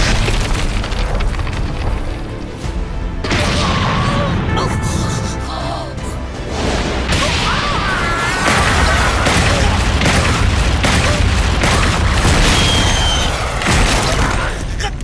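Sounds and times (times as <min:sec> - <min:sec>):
heavy impact booms and blasts: 0:08.4 - 0:14.4.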